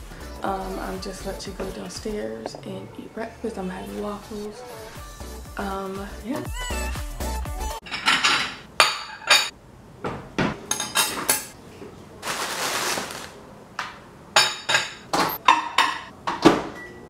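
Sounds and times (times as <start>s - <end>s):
cutlery and glass plate clinking: 7.8s - 9.5s, 10.7s - 11.5s
rustling: 12.2s - 13.4s.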